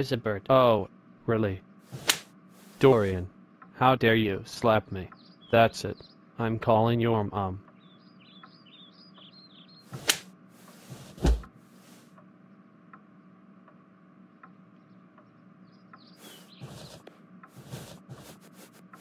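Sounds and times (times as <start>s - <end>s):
faint steady hum: 0.0s - 19.0s
soft taps and rustles: 9.9s - 12.2s
sharp knocking thumps: 10.9s - 11.5s.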